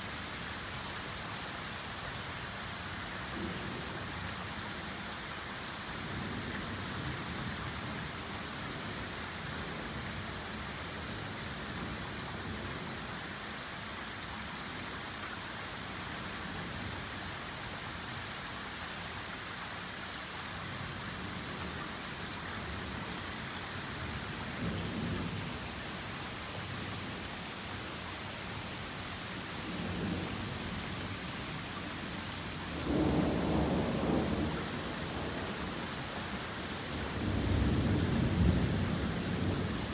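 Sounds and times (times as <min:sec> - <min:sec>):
torrential rain pouring: 0:00.0 - 0:39.9
low thunder rumbling: 0:32.7 - 0:36.0, 0:36.9 - 0:39.9.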